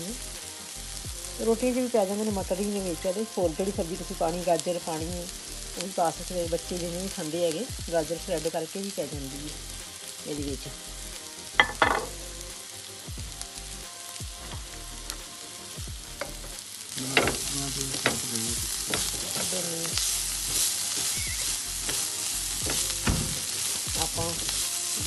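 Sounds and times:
potatoes sizzling in oil: 0:00.0 - 0:25.0
spatula tapping and scraping pan: 0:16.2 - 0:18.2, 0:18.8 - 0:19.6.

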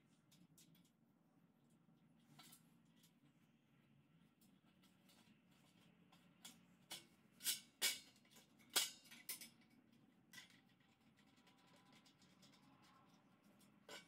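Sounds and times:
metal parts clicking and scraping: 0:04.9 - 0:14.0.

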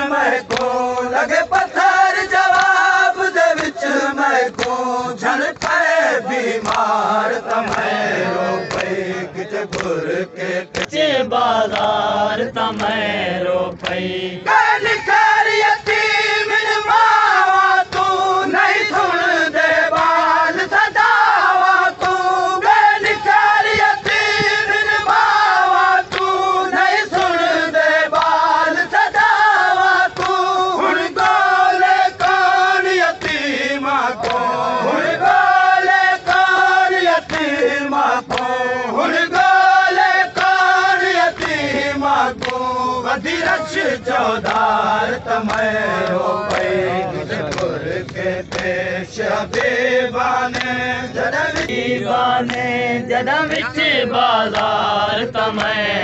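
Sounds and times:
men chanting a lament: 0:00.0 - 0:56.0
sharp chest-beating slaps: 0:04.5 - 0:04.9, 0:17.9 - 0:18.1, 0:26.1 - 0:26.4.

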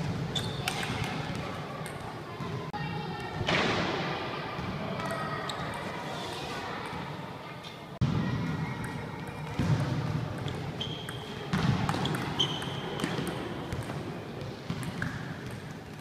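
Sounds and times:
sneakers squeaking on floor: 0:00.0 - 0:02.6, 0:04.6 - 0:06.6, 0:09.2 - 0:16.0.

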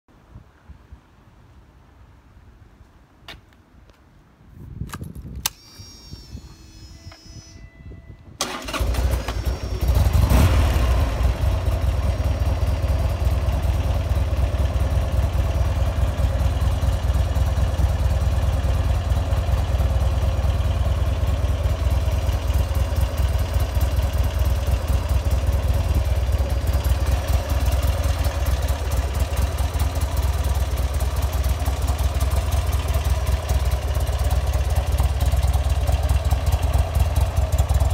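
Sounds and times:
starter motor cranking: 0:08.4 - 0:10.4
motorcycle engine revving and idling: 0:08.5 - 0:37.9.

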